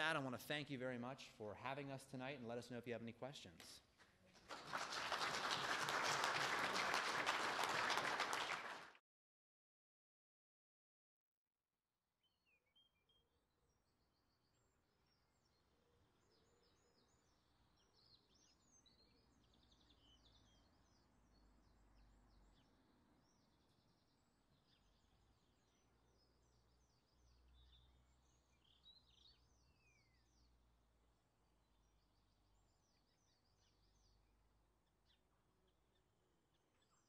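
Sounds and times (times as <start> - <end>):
small birds chirping: 12.4 - 30.9, 31.5 - 37.0.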